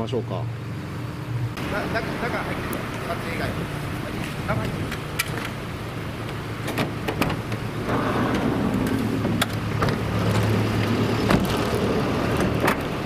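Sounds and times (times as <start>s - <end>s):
vehicle engine humming: 0.0s - 13.0s
van door opening: 6.5s - 13.0s.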